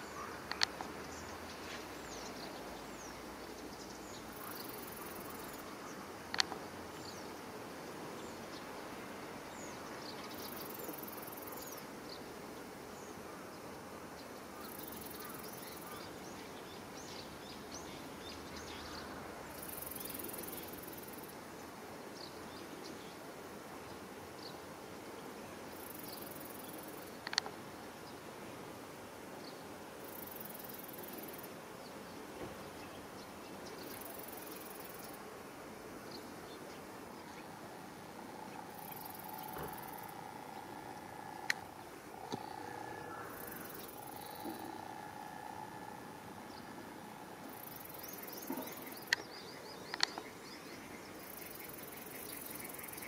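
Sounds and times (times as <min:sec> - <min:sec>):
insects buzzing: 0:00.0 - 0:13.3, 0:14.6 - 0:21.9, 0:23.4 - 0:28.0, 0:30.0 - 0:53.0
steady hiss: 0:00.0 - 0:53.0
faint high chirps: 0:36.1 - 0:50.4.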